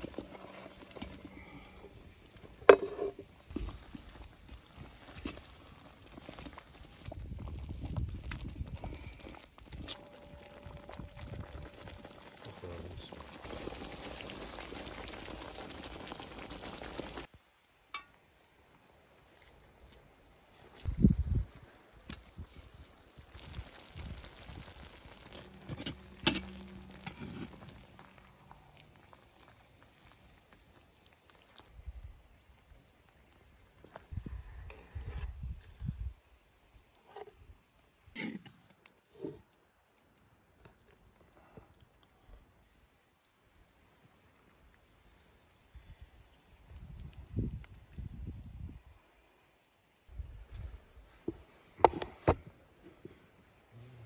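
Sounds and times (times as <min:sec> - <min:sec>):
sauce bubbling and sizzling in pan: 0:00.0 - 0:17.3, 0:20.7 - 0:36.9
metal spatula stirring: 0:02.7 - 0:03.2.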